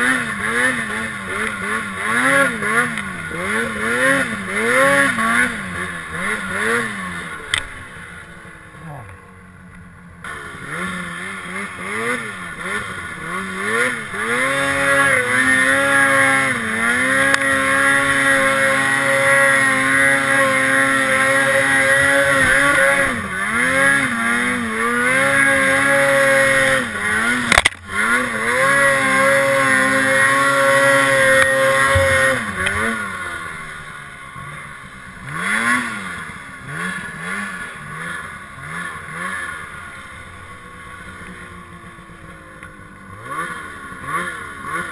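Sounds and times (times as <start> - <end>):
snowmobile engine revving: 0.0 - 44.9
sharp click: 27.5 - 27.8.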